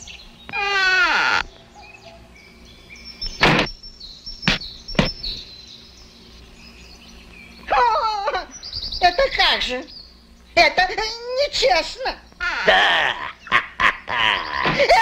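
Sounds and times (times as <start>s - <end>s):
birds chirping: 0.0s - 15.0s
sharp knocks: 3.4s - 3.7s, 4.4s - 5.2s.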